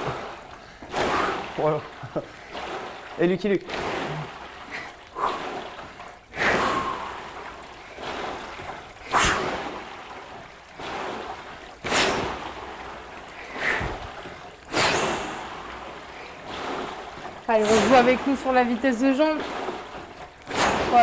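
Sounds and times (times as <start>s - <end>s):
rowing machine water whooshing: 0.0s - 21.0s.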